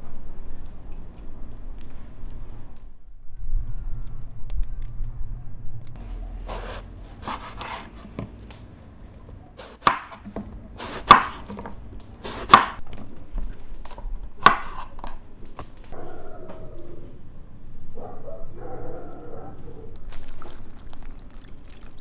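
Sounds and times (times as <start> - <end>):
knife slicing eggplant: 6.4 - 8.3, 9.6 - 10.2, 10.8 - 11.6, 12.2 - 12.8, 14.4 - 15.0.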